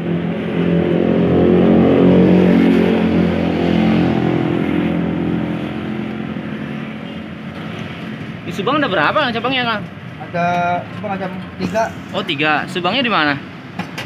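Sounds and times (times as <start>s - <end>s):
vehicle engine passing by: 0.0s - 8.5s.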